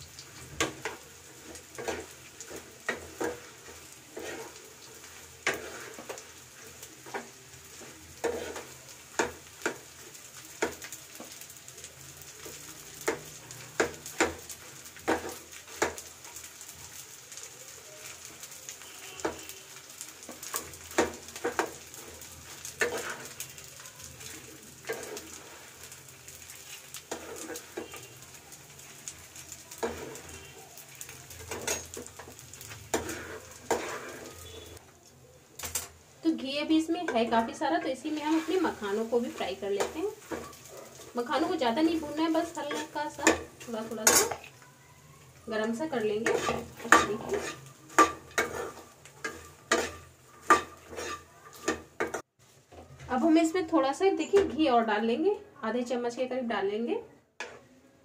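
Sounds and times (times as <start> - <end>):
food sizzling in oil: 0.0 - 57.8
steel spatula scraping a pan: 0.4 - 9.9, 18.3 - 34.8, 36.9 - 44.6, 45.3 - 52.2, 57.4 - 57.8.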